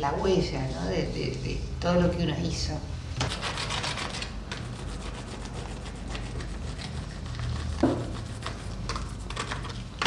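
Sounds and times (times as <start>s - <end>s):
knock: 7.8s - 8.2s.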